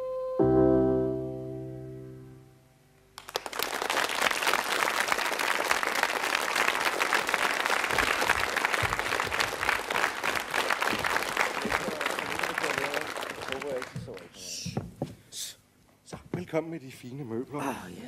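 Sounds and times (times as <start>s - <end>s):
piano chord: 0.0s - 3.0s
audience applause: 3.2s - 14.4s.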